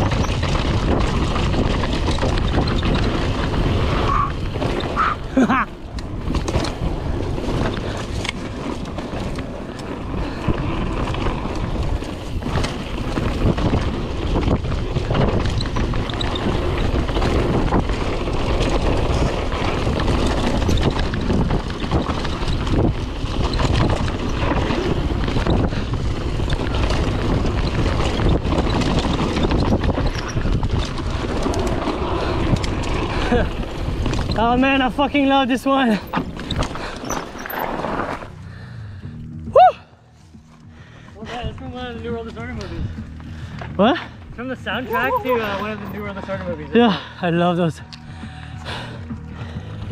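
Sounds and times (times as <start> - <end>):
wind buffeting microphone: 0.0 - 37.4, 40.8 - 49.9
bike knocks and rattles: 0.0 - 38.5
tyres rolling on ground: 0.0 - 39.2.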